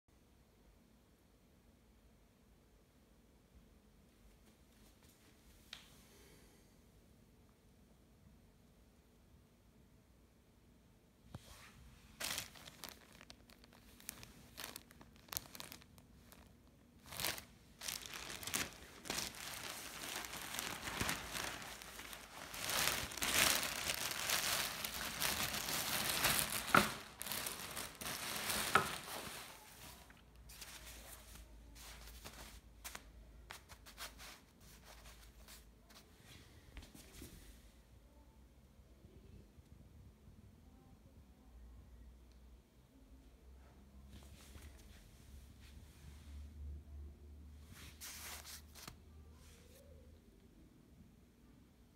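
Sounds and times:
plastic bag crinkling: 12.2 - 33.0.

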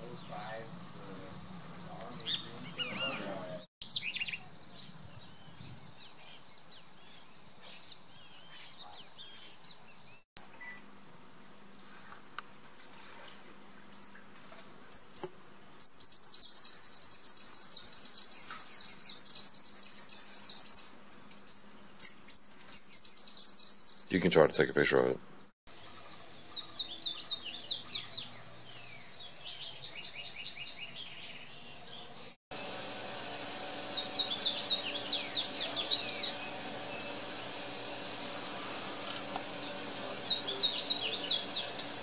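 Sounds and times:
songbird twittering: 1.9 - 10.8, 14.9 - 25.0, 25.7 - 31.6, 32.6 - 42.0
high-pitched insect drone: 32.5 - 42.0.

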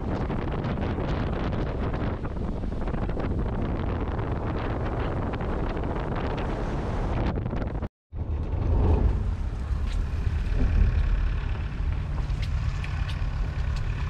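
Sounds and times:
water: 0.0 - 14.0
wind: 0.0 - 14.0
vehicle engine and road noise: 8.1 - 14.0.

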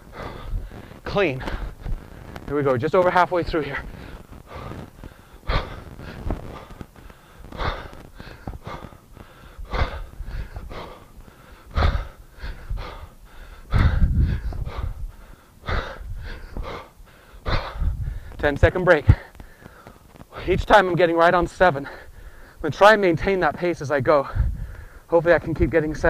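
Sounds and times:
quiet breaths: 0.0 - 25.8
man exhaling forcefully: 3.9 - 18.3.

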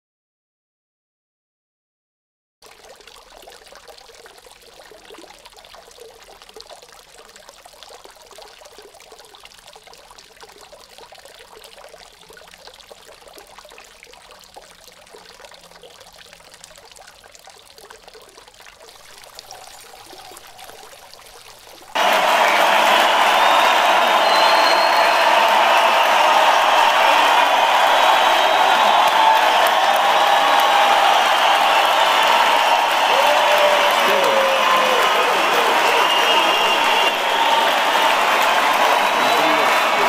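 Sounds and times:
liquid pouring: 2.6 - 22.0.

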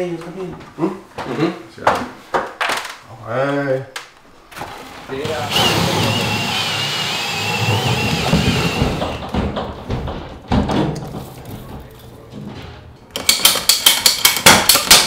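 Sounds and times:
hand saw cutting plastic: 5.2 - 9.2
knocks and thumps from handling: 7.6 - 13.5.

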